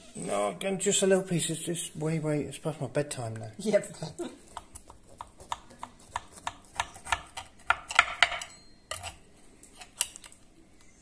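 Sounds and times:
knife cutting crunchy tart: 4.5 - 8.0.

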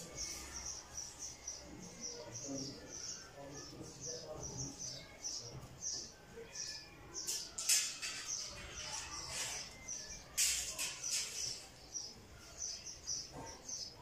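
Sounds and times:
bird chirping: 0.0 - 14.0.

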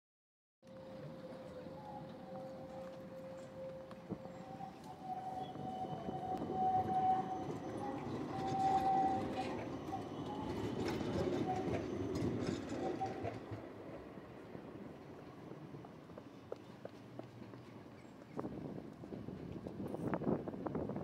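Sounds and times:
tram wheels rumbling on rails: 0.7 - 21.0
high wheel squeal: 0.8 - 13.6.

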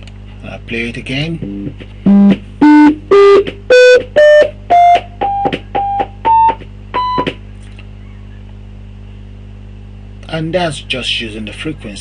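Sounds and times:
computer beep tones rising: 2.1 - 7.2.

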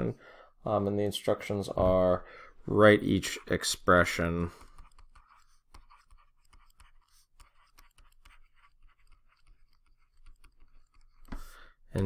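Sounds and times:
stylus tapping and scratching: 3.0 - 12.0.

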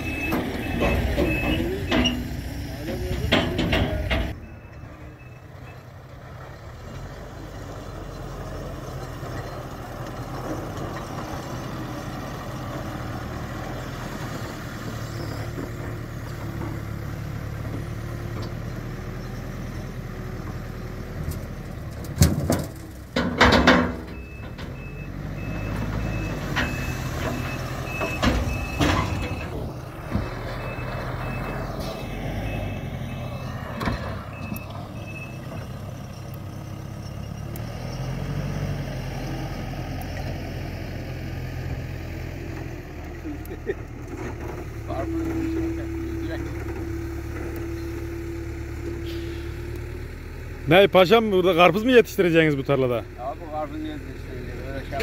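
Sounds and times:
reversing alarm beeping: 0.0 - 2.4, 3.8 - 5.9, 24.1 - 33.6, 34.2 - 35.6
diesel engines running: 0.0 - 55.0.

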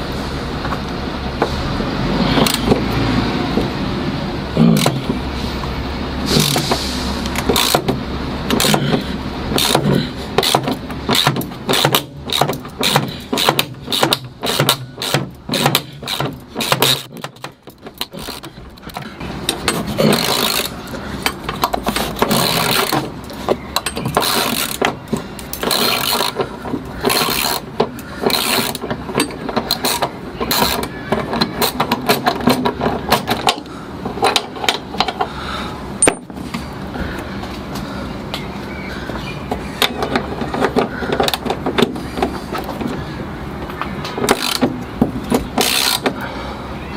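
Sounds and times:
ratchet wrench clicking: 6.3 - 35.2, 44.2 - 46.2.

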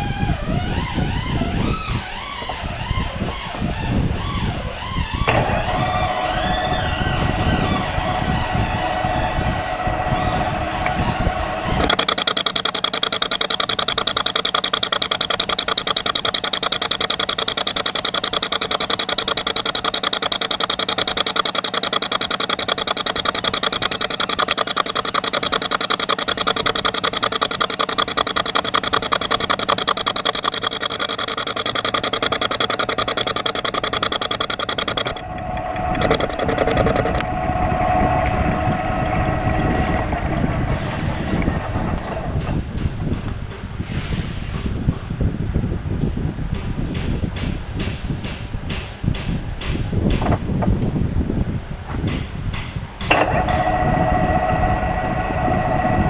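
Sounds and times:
lathe humming: 5.2 - 42.9, 53.1 - 56.0
lathe cutting clatter with ring: 11.8 - 42.5.

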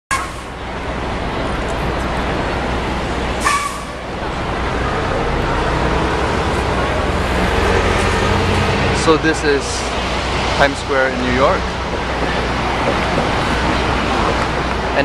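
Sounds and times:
rumble of passing vehicles: 0.1 - 15.0.

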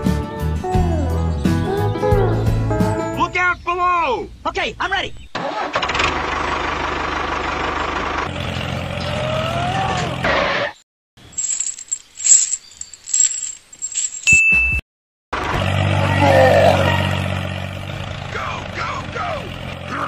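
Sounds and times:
clinking and scraping: 11.2 - 14.8
short ding: 14.3 - 14.8.

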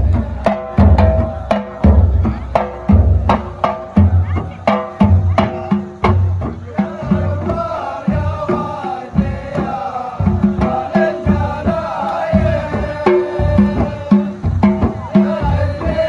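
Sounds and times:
frame drum beat: 0.0 - 16.0
person singing: 6.6 - 16.0.

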